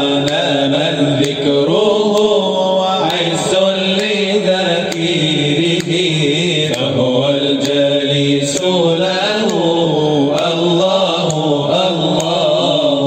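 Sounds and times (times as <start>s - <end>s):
low vocal drone: 0.0s - 13.0s
men chanting a melody: 0.0s - 13.0s.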